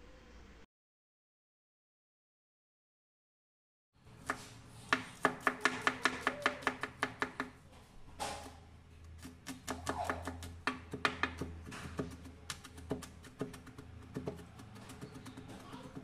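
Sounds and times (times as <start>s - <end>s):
knife chopping on wooden board: 4.2s - 7.6s, 9.2s - 16.0s.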